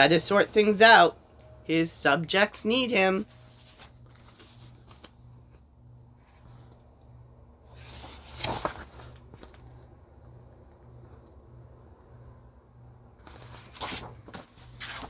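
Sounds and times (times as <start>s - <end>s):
paper page turning: 3.4s - 5.4s, 7.7s - 9.8s, 13.2s - 15.0s.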